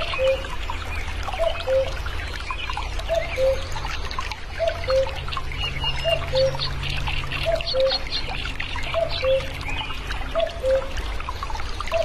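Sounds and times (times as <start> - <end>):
cuckoo calling: 0.0 - 0.6, 1.4 - 2.0, 3.0 - 3.7, 4.6 - 5.2, 5.8 - 6.7, 7.4 - 8.2, 8.9 - 9.5, 10.3 - 11.0
small birds chirping: 0.0 - 10.9
water trickling: 0.0 - 12.0.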